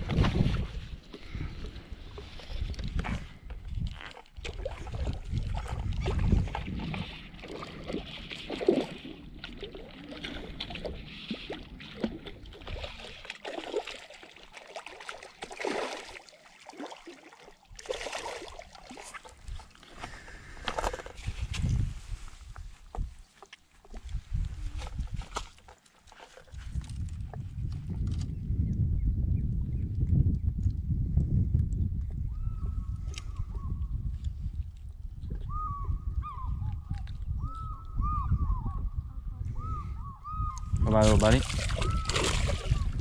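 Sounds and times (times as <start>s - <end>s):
fish splashing in water: 4.1s - 19.8s, 41.1s - 43.0s.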